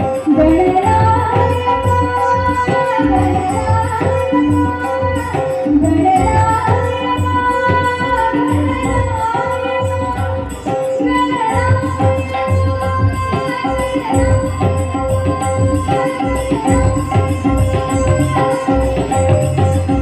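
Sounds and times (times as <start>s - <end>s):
held accompanying note: 0.0s - 20.0s
woman singing into a microphone: 0.0s - 20.0s.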